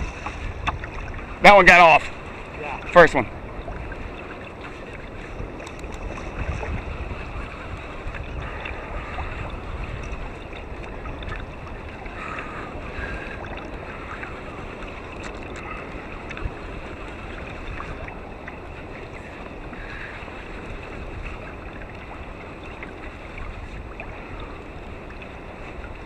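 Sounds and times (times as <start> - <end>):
water lapping against kayak hull: 0.0 - 26.0
wind on microphone: 0.0 - 26.0.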